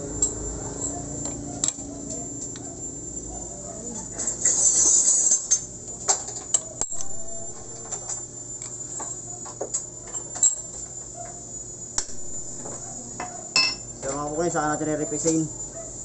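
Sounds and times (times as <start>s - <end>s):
steady high whine: 4.2s - 15.6s.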